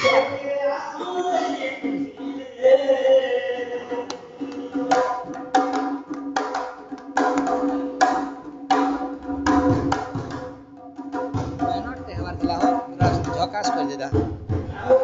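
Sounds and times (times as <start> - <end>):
man singing into microphone: 0.0 - 4.9
hand drum beat: 3.8 - 15.0.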